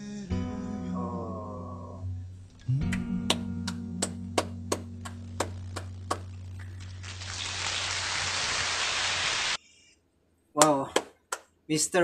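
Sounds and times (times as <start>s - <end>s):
hand claps: 2.8s - 6.3s, 10.6s - 11.6s.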